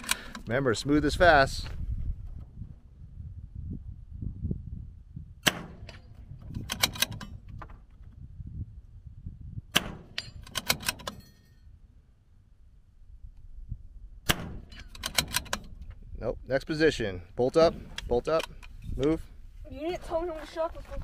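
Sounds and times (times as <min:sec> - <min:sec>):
rifle bolt clicks: 0:00.0 - 0:00.5, 0:05.4 - 0:07.4, 0:09.8 - 0:11.3, 0:14.3 - 0:15.9
rifle shots: 0:05.4 - 0:06.1, 0:09.7 - 0:11.2, 0:14.2 - 0:15.7.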